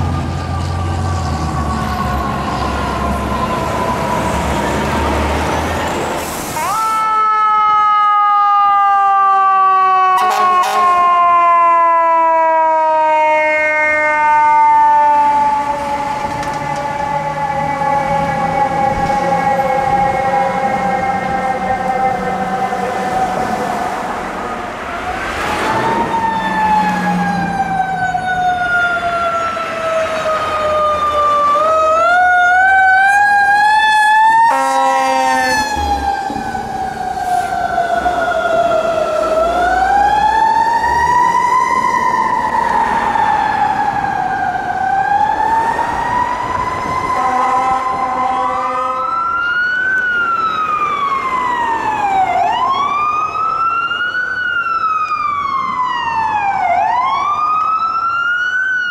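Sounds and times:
emergency siren wailing: 0.0s - 58.9s
vehicle horn blast: 10.2s - 11.0s, 34.5s - 35.7s, 47.2s - 49.0s.

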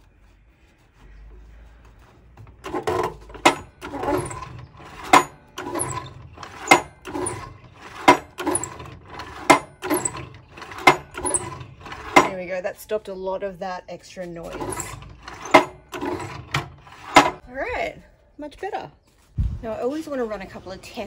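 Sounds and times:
scraping: 0.0s - 12.7s, 14.1s - 17.5s.

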